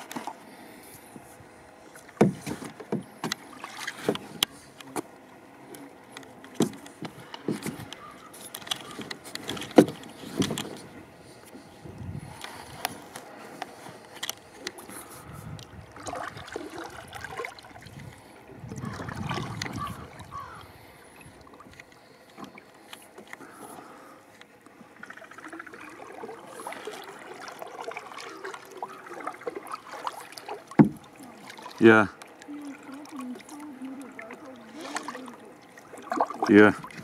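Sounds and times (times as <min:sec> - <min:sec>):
paddle splashing in water: 0:00.0 - 0:05.2, 0:12.3 - 0:37.0
small irregular knocks: 0:30.8 - 0:31.0.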